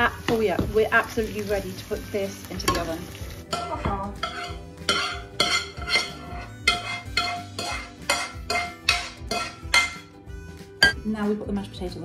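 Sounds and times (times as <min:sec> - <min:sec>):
faint background music: 0:00.0 - 0:12.0
spatula scraping frying pan: 0:02.7 - 0:10.1.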